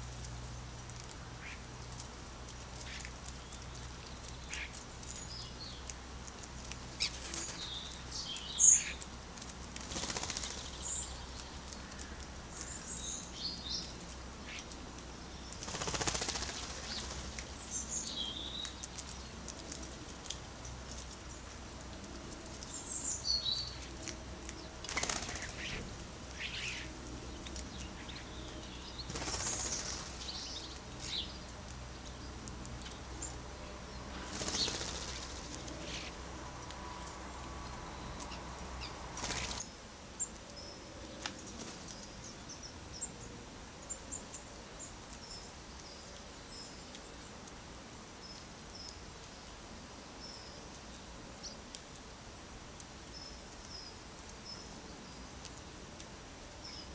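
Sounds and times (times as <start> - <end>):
birds chirping: 0.0 - 47.5
birds wingbeats: 8.7 - 12.7, 15.5 - 17.9, 24.0 - 31.2, 34.0 - 37.1, 38.2 - 39.7.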